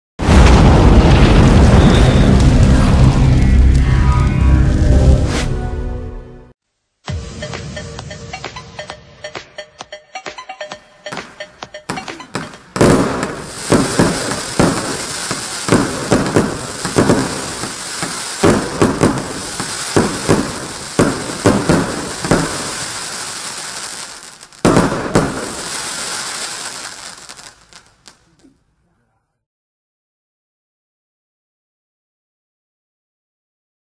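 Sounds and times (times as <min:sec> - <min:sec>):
fireworks bangs: 0:00.2 - 0:03.9, 0:11.1 - 0:28.3
high hiss of burning stars: 0:13.3 - 0:24.6, 0:25.3 - 0:28.2.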